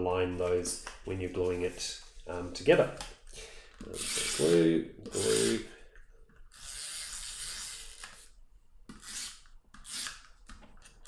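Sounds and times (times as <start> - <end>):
cardstock rubbing and sliding: 3.9 - 5.6.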